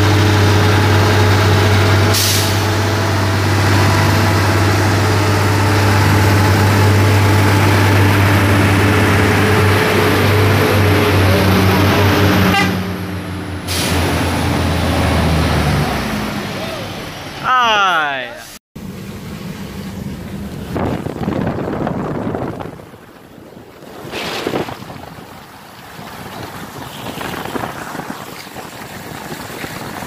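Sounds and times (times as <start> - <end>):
diesel truck engines under load: 0.0 - 30.0
short air hisses: 2.1 - 2.7, 13.7 - 14.1.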